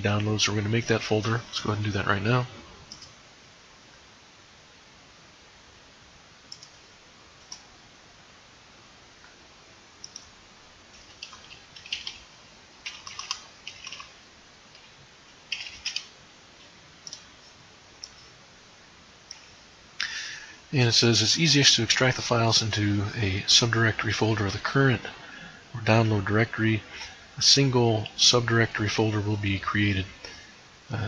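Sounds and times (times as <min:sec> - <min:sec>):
computer mouse clicks: 0:02.9 - 0:03.2, 0:06.5 - 0:06.8, 0:07.4 - 0:07.7, 0:10.0 - 0:10.3, 0:11.0 - 0:12.2, 0:12.8 - 0:14.1, 0:15.5 - 0:16.1, 0:17.0 - 0:17.3, 0:18.0 - 0:18.3.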